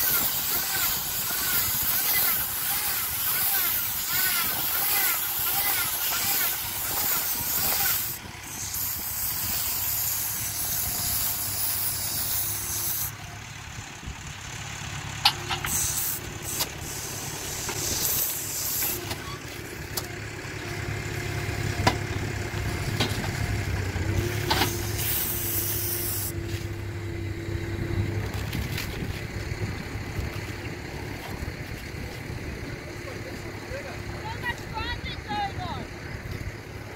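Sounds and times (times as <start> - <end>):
loud hissing: 0.0 - 13.2, 15.7 - 19.1, 24.2 - 26.4
tractor engine running: 0.0 - 36.9.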